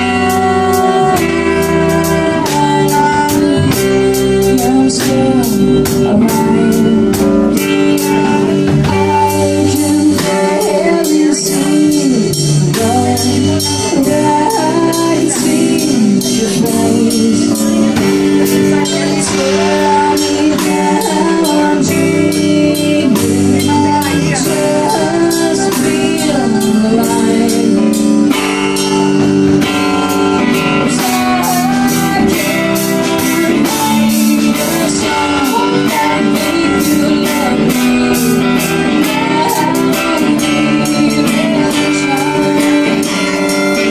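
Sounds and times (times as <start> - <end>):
rock band playing slow song: 0.0 - 43.9.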